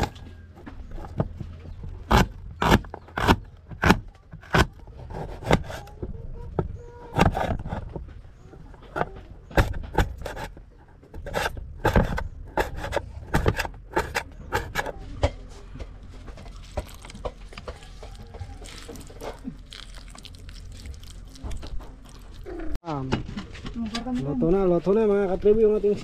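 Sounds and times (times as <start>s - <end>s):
knocks and scrapes on wood: 0.0s - 19.5s
rubbing and scraping: 0.0s - 24.2s.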